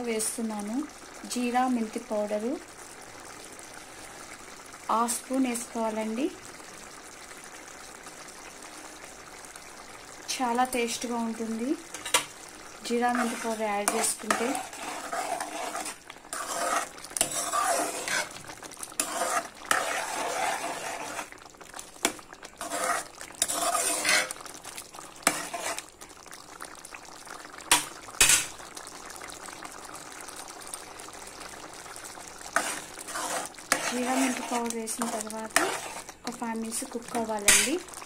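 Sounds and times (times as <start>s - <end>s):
curry simmering and sizzling: 0.0s - 38.0s
metal spoon stirring in a pan: 11.9s - 26.0s, 27.7s - 28.6s, 32.2s - 38.0s
spoon clacking on pan: 27.7s - 28.6s, 37.4s - 37.8s.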